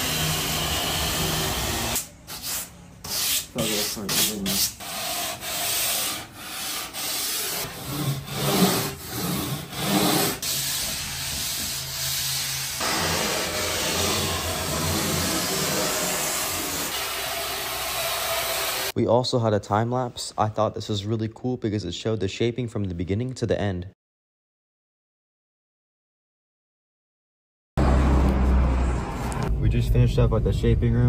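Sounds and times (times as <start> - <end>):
sandpaper rasping strokes: 2.3 - 18.9.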